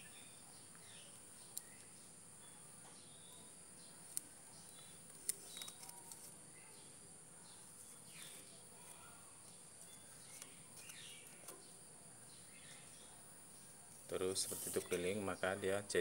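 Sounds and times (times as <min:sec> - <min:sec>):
twine rustling: 0:13.8 - 0:15.4.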